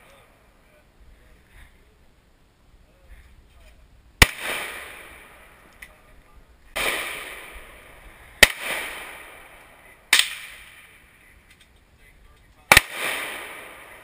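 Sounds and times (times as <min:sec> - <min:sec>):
gunshots with echo: 0:04.2 - 0:05.5, 0:06.8 - 0:10.9, 0:12.7 - 0:14.0.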